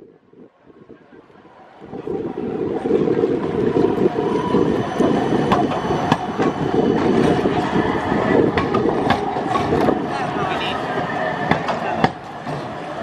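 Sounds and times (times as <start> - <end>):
tram wheels rumbling on rails: 0.0 - 13.0
wheels clanking over track joints: 3.4 - 10.4.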